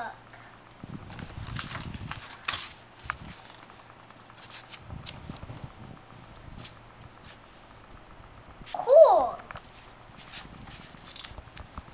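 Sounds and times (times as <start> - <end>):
book pages rustling: 0.9 - 5.7, 6.6 - 7.9, 9.5 - 11.9.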